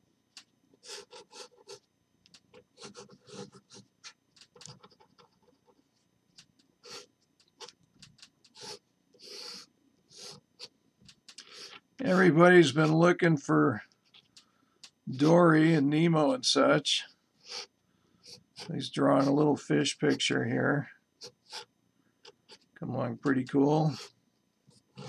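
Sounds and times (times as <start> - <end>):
pen scratching on paper: 0.8 - 1.8, 2.5 - 5.8, 8.5 - 10.7, 21.2 - 21.7.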